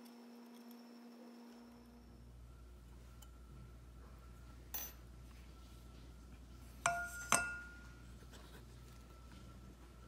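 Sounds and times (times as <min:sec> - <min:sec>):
metal bowl clinking and ringing: 0:04.7 - 0:05.1, 0:06.8 - 0:08.0.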